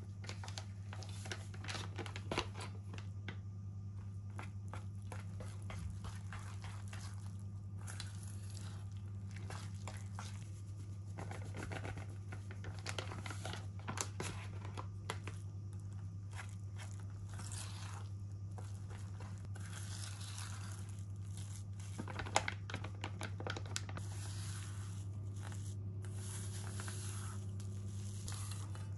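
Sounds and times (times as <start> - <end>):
steady low hum: 0.0 - 28.9
whisk scraping dough in metal bowl: 4.7 - 12.2, 16.4 - 21.7, 24.0 - 28.9.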